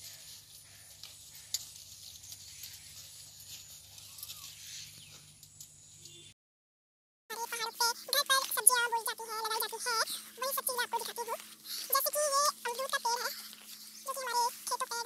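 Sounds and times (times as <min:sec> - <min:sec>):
maize plants rustling: 0:00.0 - 0:05.7, 0:07.4 - 0:15.0.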